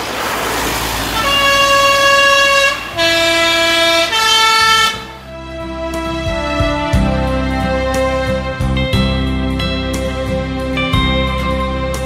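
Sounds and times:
three-tone bus horn: 0:01.1 - 0:08.5.

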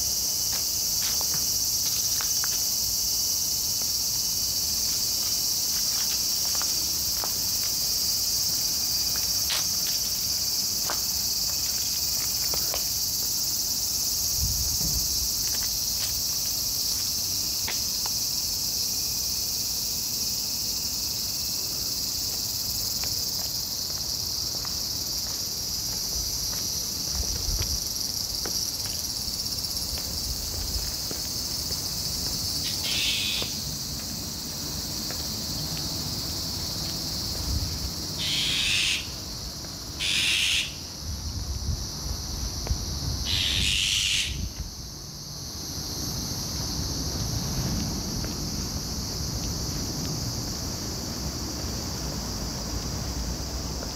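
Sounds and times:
insects shrilling: 0:31.4 - 0:34.5, 0:38.2 - 0:39.4, 0:40.0 - 0:40.9, 0:43.3 - 0:44.6.

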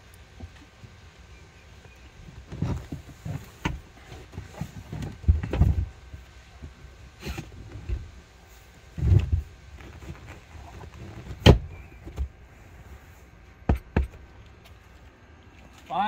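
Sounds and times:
dull thumps of cushions: 0:02.4 - 0:06.2, 0:08.9 - 0:12.4, 0:13.6 - 0:14.3.

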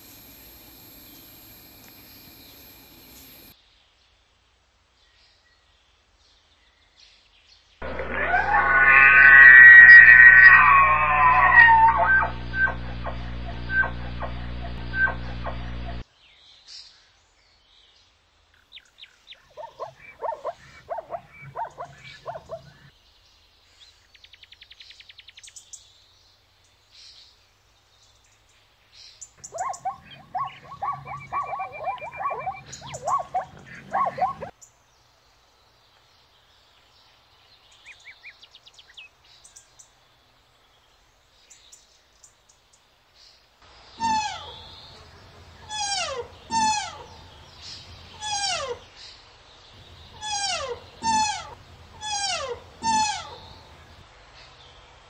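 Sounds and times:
small birds chirping faintly: 0:00.0 - 0:55.0
high calls sliding down in pitch: 0:07.8 - 0:16.0, 0:29.4 - 0:34.5, 0:45.6 - 0:48.8, 0:50.1 - 0:54.0
zebra barking yelps: 0:07.8 - 0:16.0, 0:19.5 - 0:22.9, 0:29.4 - 0:34.5, 0:44.0 - 0:48.9, 0:49.8 - 0:54.0.

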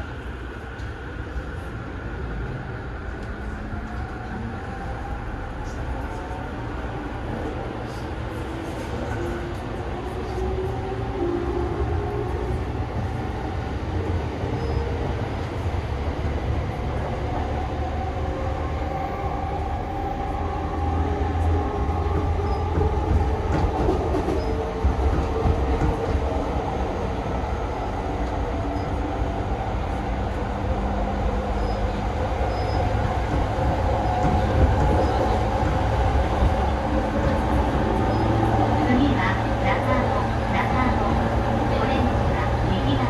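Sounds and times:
wheels rumbling on rail: 0:00.0 - 0:43.0.

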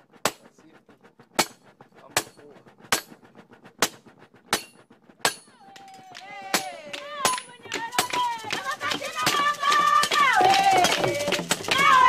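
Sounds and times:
hammer striking metal: 0:01.4 - 0:01.6, 0:03.8 - 0:08.2.

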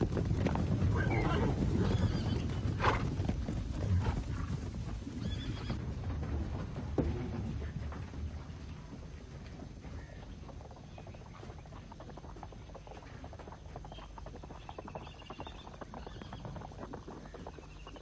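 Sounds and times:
horse hooves galloping on dirt: 0:00.0 - 0:18.0
horses neighing: 0:00.1 - 0:05.9.

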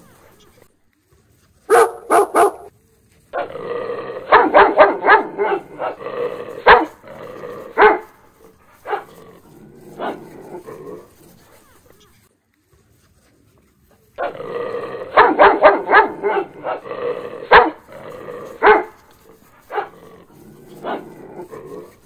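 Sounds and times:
dogs barking: 0:01.7 - 0:02.7, 0:04.2 - 0:09.2, 0:14.2 - 0:22.0
dog growling: 0:03.4 - 0:11.6, 0:14.2 - 0:22.0.

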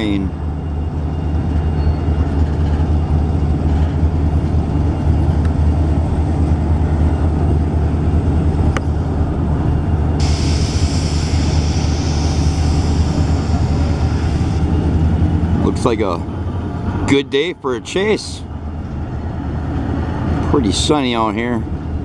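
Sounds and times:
freight train cars rolling on rails: 0:00.0 - 0:22.0
high hiss: 0:10.2 - 0:14.6.

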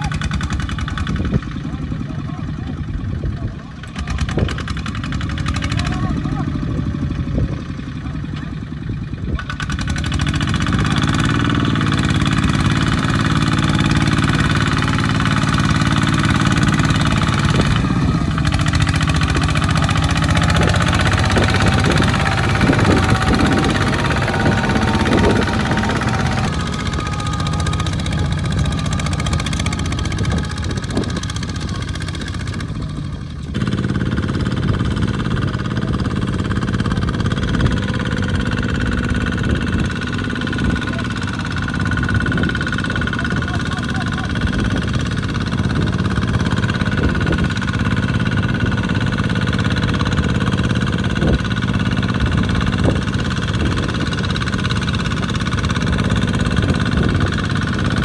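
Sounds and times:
diesel tractor engines running: 0:00.0 - 0:58.0.

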